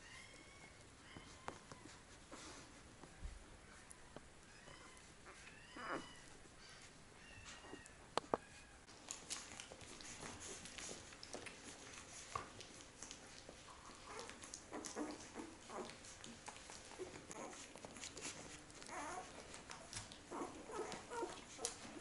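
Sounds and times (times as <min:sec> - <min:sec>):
puppies suckling: 0:00.0 - 0:22.0
puppies squeaking and whimpering: 0:04.5 - 0:22.0.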